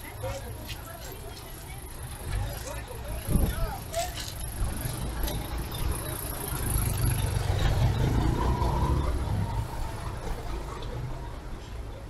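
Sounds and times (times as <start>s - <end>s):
car engine passing by: 6.5s - 11.2s.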